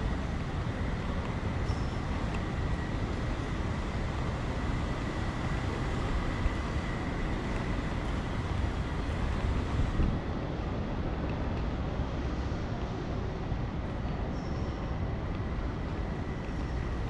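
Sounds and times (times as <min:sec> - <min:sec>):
train rumbling: 0:00.0 - 0:10.4
faint steady whine: 0:00.0 - 0:17.0.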